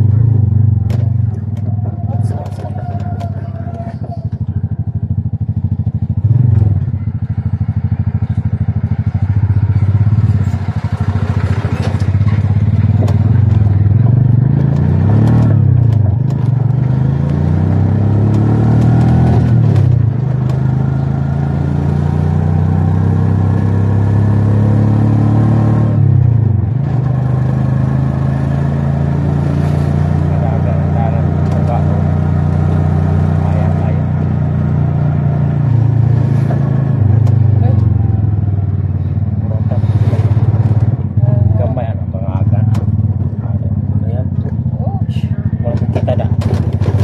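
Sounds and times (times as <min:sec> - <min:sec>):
motorcycle engine accelerating: 0:00.0 - 0:47.0
clatters over gravel road: 0:10.4 - 0:16.7, 0:45.6 - 0:47.0.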